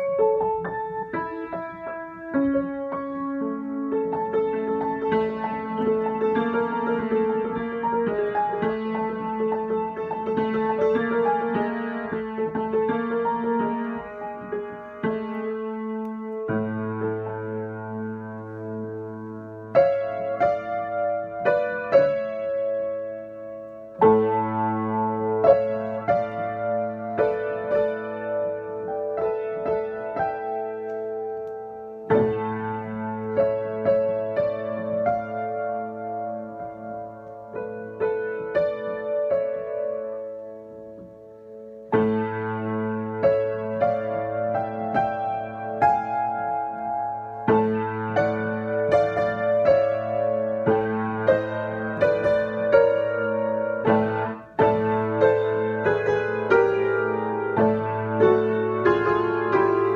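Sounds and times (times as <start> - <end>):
upright piano improvisation: 0.0 - 59.9.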